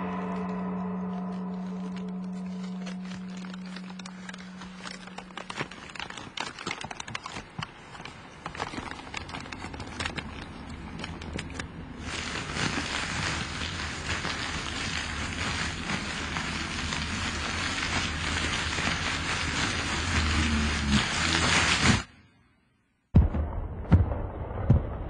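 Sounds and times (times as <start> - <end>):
gong ringing: 0.0 - 5.3
crackling clicks: 0.2 - 22.2
dense steady hiss: 8.3 - 22.4.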